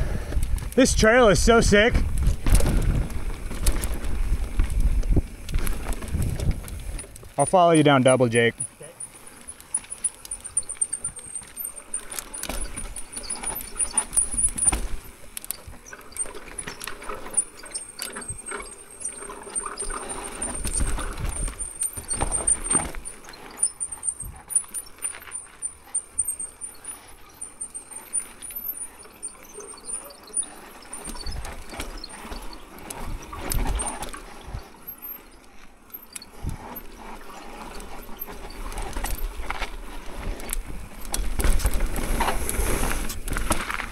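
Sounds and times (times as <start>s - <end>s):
wind rumble on microphone: 0.0s - 7.0s
bike knocking and rattling: 0.0s - 43.9s
bike tyres rolling and skidding: 0.0s - 43.9s.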